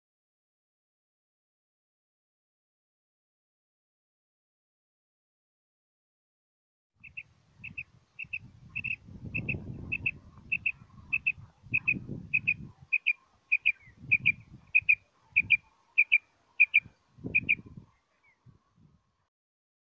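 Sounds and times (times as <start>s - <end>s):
quail two-note chirp: 7.0s - 17.6s.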